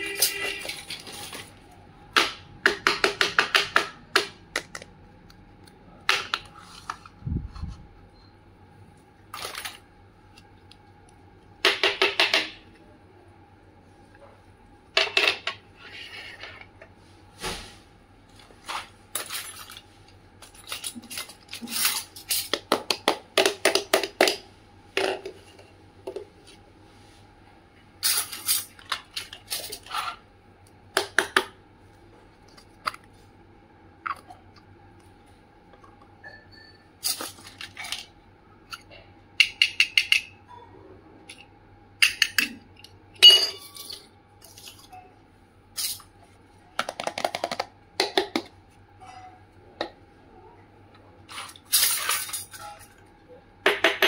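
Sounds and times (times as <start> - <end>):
toy kitchen pieces clicking: 46.8 - 48.4.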